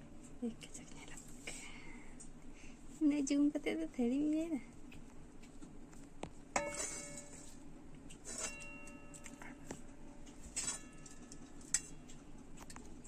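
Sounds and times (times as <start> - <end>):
steel ladle clinking on metal pan: 6.6 - 7.5.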